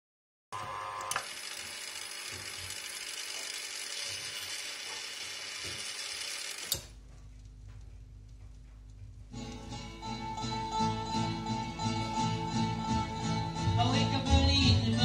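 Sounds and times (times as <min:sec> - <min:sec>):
record changer mechanism whirring: 0:00.6 - 0:07.0.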